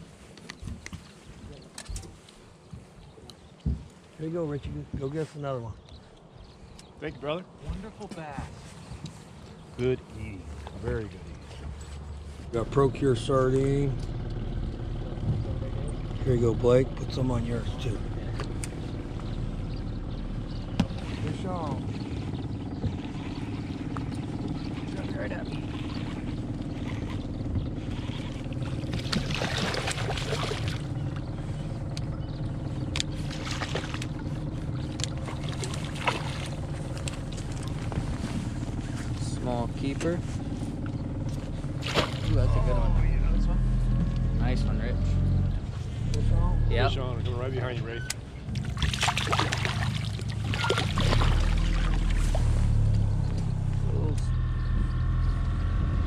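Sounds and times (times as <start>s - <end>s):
boat engine humming: 0.0s - 56.0s
water splashing: 20.7s - 31.5s, 33.0s - 38.6s, 41.7s - 42.9s, 48.5s - 53.7s.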